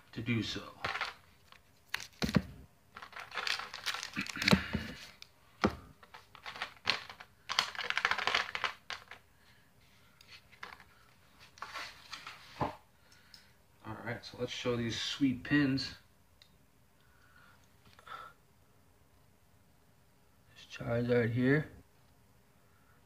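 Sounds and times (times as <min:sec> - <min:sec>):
plastic packaging crinkling: 0:00.8 - 0:05.3, 0:06.0 - 0:09.2.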